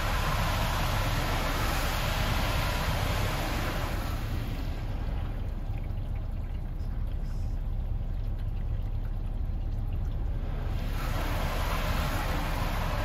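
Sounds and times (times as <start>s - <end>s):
water spray hitting windshield: 0.0s - 5.4s, 10.4s - 13.0s
low steady rumble: 0.0s - 13.0s
water trickling down glass: 0.0s - 13.0s.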